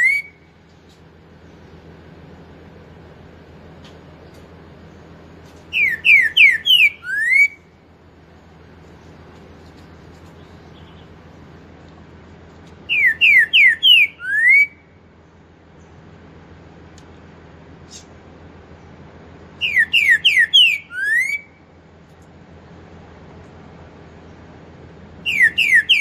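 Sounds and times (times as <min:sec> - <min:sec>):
bird whistling song: 0:00.0 - 0:00.6, 0:05.6 - 0:07.7, 0:10.3 - 0:11.2, 0:12.8 - 0:14.9, 0:19.6 - 0:21.6, 0:25.2 - 0:26.0.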